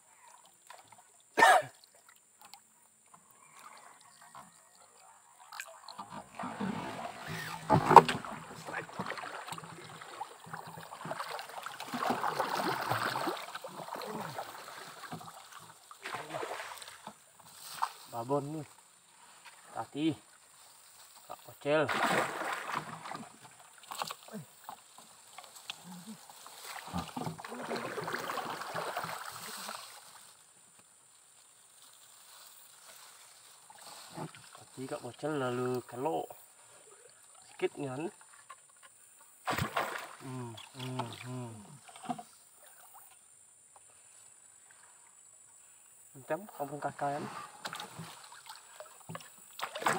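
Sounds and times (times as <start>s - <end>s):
water splashing: 5.3s - 18.8s, 21.4s - 30.4s, 39.4s - 43.1s, 46.2s - 49.9s.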